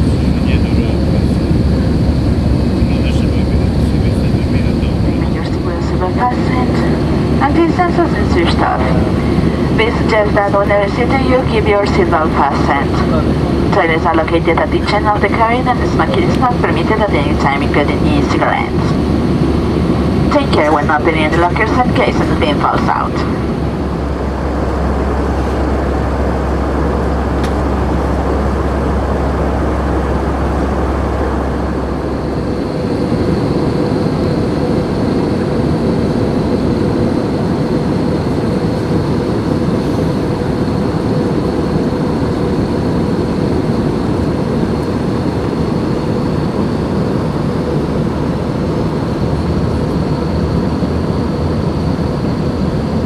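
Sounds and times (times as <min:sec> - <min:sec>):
deep hum: 0:00.0 - 0:37.6
aircraft engines droning: 0:00.0 - 0:53.0
thin steady whine: 0:00.0 - 0:53.0
rushing airflow: 0:03.8 - 0:13.8, 0:18.1 - 0:36.8.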